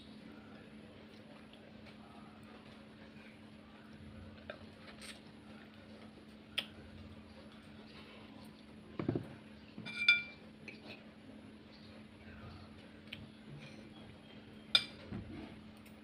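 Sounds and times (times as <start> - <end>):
steady low hum: 0.0 - 16.0
dull knock: 9.0 - 9.3
fork clinking on ceramic plate: 9.9 - 10.4.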